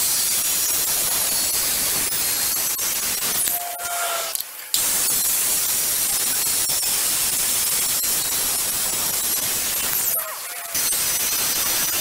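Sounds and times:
circular saw cutting wood: 0.0s - 6.6s.

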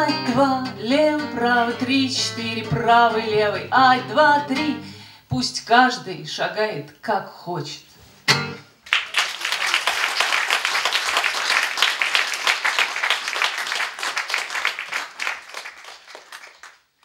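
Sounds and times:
audience applauding: 8.9s - 17.0s.

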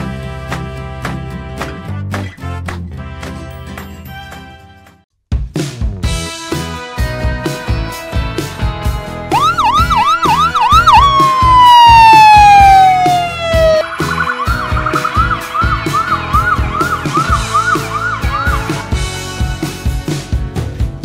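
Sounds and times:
music with steady drum beat: 5.3s - 21.0s
electronic ambulance siren: 9.3s - 18.7s.

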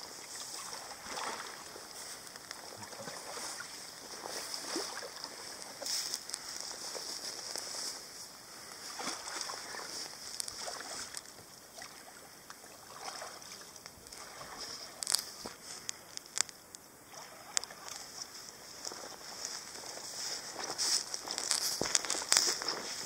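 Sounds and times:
paddle splashing in water: 0.1s - 6.0s, 8.8s - 15.4s.

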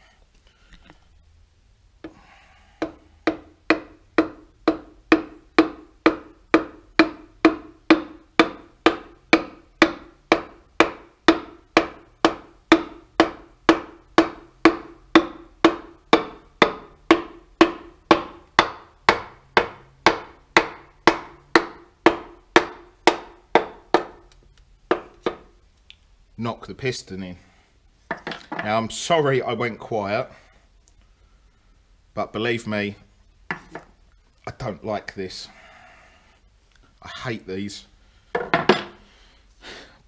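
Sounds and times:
hollow knocks of hammer handle: 33.5s - 33.9s.

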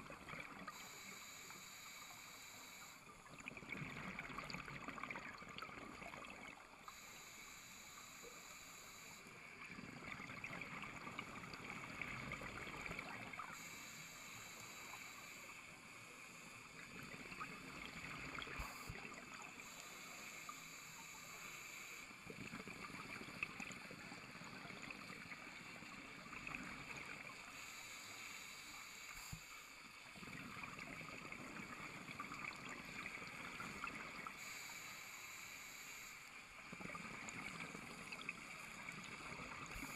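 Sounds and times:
muffled underwater hiss: 0.0s - 39.9s
regulator breathing underwater: 34.3s - 36.4s.

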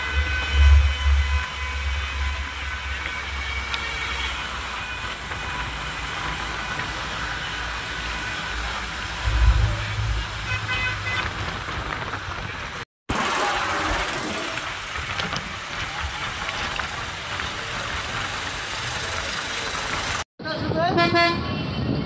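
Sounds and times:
vehicle engine and road noise: 0.0s - 22.0s
car horn honk: 9.2s - 11.5s.

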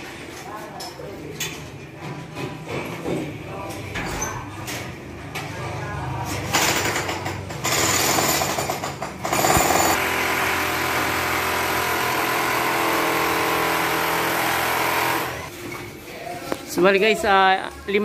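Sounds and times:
electric jackhammer hammering: 7.6s - 15.5s.

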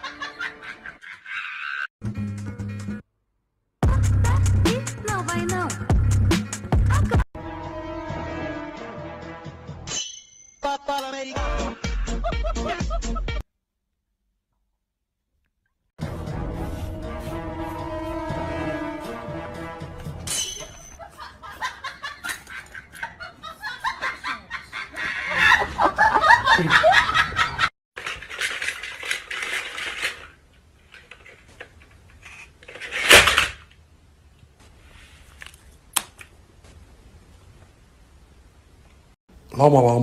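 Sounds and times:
people laughing and giggling: 0.0s - 1.8s, 11.5s - 13.4s, 21.0s - 27.7s.

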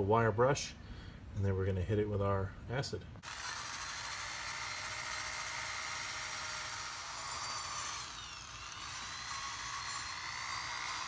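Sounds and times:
drill with wire brush scrubbing steel: 3.2s - 11.0s.

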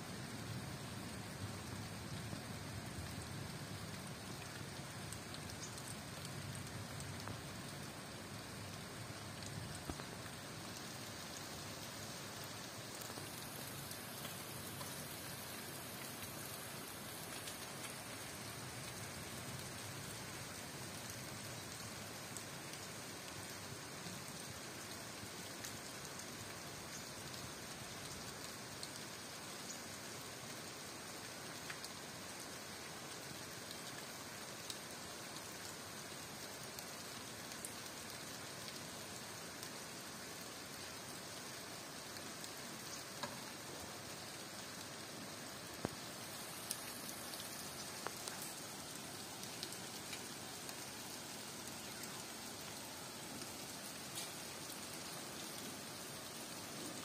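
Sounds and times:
steady rain hiss: 0.0s - 57.0s.

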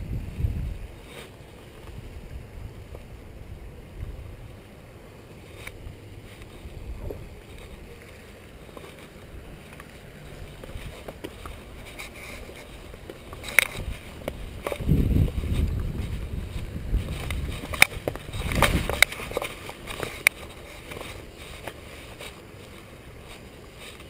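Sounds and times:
wind rumbling on microphone: 0.0s - 24.0s.

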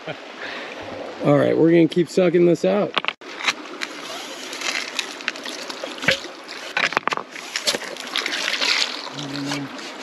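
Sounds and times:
suction dredge slurping water: 3.9s - 10.0s.

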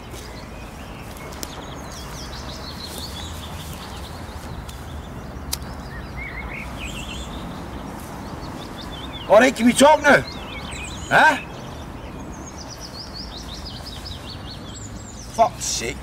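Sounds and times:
small birds singing: 0.0s - 16.0s
sharp click: 5.5s - 5.7s.

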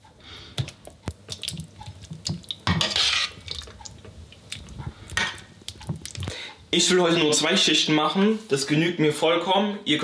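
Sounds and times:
wet sauce splats and squelches: 0.6s - 2.7s
wet scraping: 1.3s - 6.3s.

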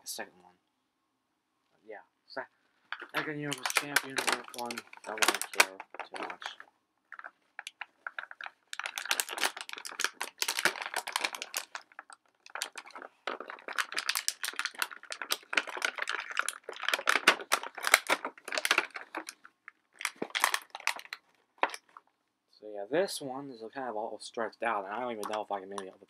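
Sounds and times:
plastic bag crinkling: 2.9s - 22.0s.

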